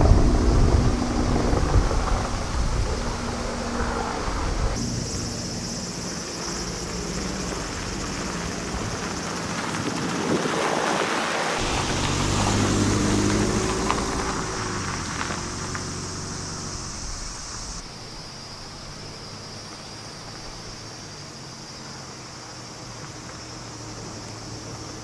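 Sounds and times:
insects chirring: 4.7s - 25.0s
van engine running: 4.8s - 10.3s
stones crunching under tyres: 4.8s - 17.1s.

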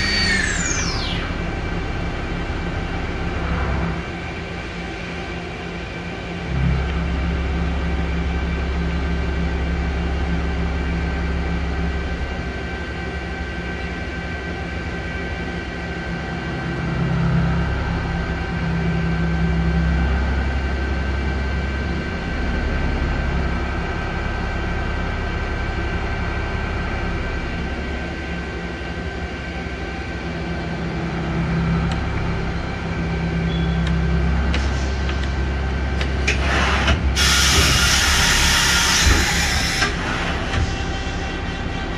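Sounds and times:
high machine whine: 0.0s - 41.9s
machine mechanical hum: 0.0s - 41.9s
compressed air hissing: 36.4s - 39.8s.

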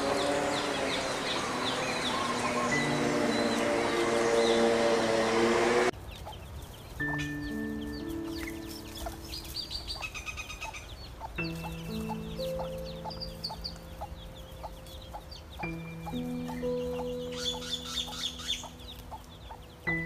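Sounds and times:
background music of held chords: 0.0s - 6.0s, 6.9s - 20.0s
chicks peeping: 0.0s - 20.0s
hen clucking: 6.1s - 19.8s.

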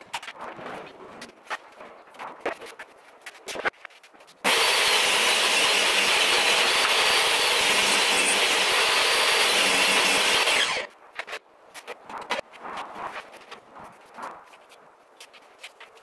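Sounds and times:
table saw cutting plywood: 4.4s - 10.9s.

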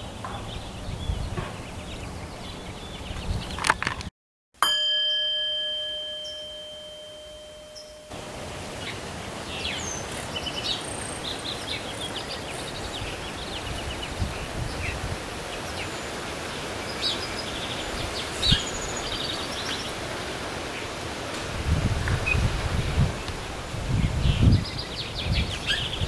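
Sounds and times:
small birds chirping and trilling: 0.0s - 3.7s, 7.7s - 21.0s, 23.9s - 26.0s
background hiss: 5.3s - 26.0s.

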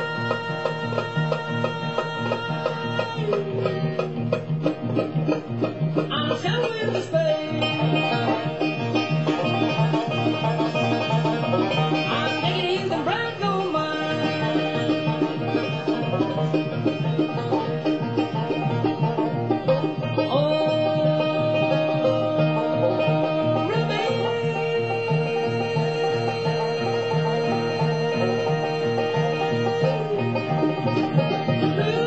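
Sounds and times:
high tenor voice singing: 0.0s - 3.8s, 11.8s - 16.8s, 20.1s - 32.0s
banjo rolls: 0.0s - 32.0s
bluegrass band playing: 0.0s - 32.0s.

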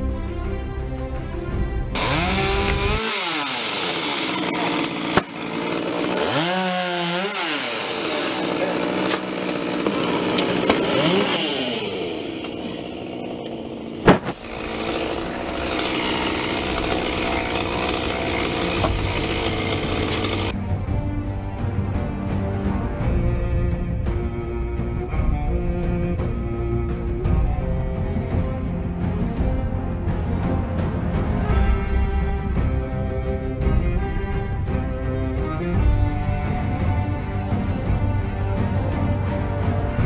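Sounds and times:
chainsaw revving: 2.0s - 20.6s
sharp knock: 14.0s - 14.4s
loud crack: 14.0s - 20.5s.

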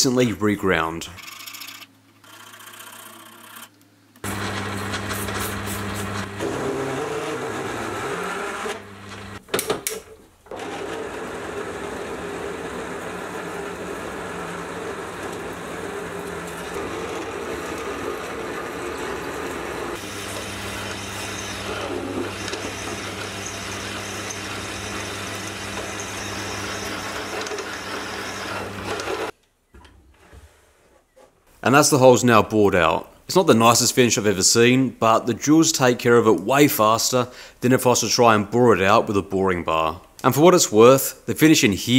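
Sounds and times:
drill bit grinding steel: 4.2s - 9.4s, 10.7s - 29.3s
lathe motor hum: 4.2s - 9.4s, 10.5s - 29.3s.

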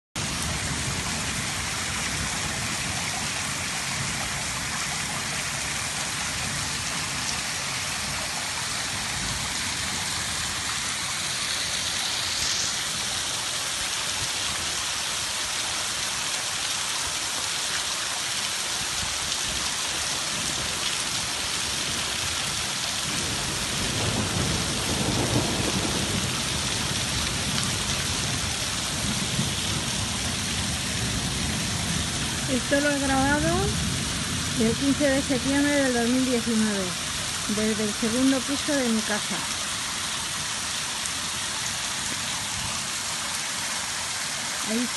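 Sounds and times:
heavy rain hammering: 0.2s - 44.9s.

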